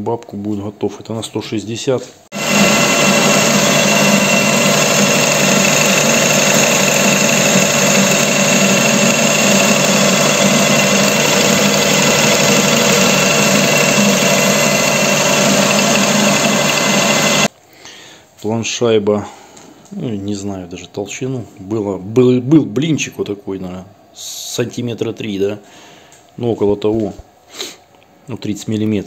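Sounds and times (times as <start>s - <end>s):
high whine: 2.3s - 17.5s
lathe machine hum: 2.3s - 17.5s.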